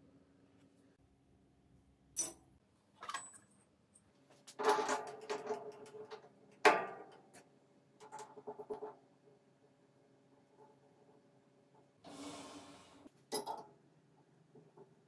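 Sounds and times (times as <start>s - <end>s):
metal clinking on metal: 2.2s - 2.4s.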